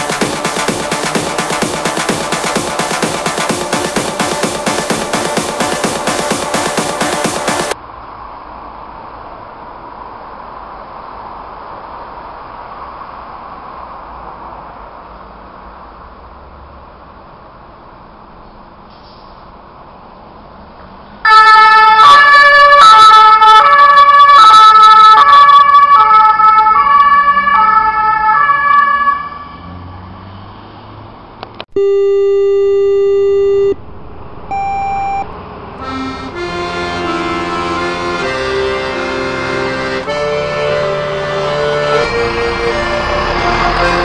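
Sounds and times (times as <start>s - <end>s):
music: 0.0s - 7.8s, 35.8s - 44.0s
two-tone ambulance siren: 21.3s - 29.9s, 31.8s - 38.2s, 39.0s - 44.0s
steady held tone: 31.7s - 36.6s.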